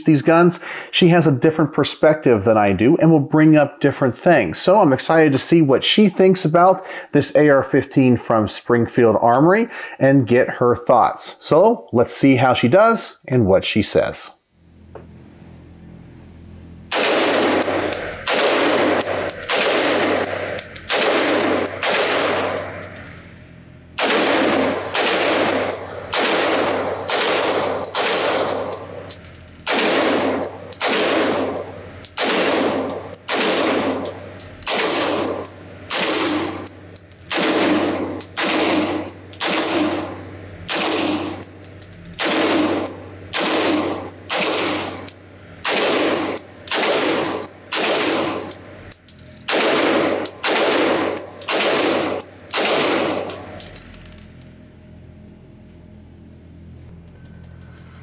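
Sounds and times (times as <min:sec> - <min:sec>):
rifle shots echoing indoors: 0:16.9 - 0:22.8, 0:24.0 - 0:40.1, 0:40.7 - 0:41.5, 0:42.2 - 0:48.6, 0:49.5 - 0:53.3.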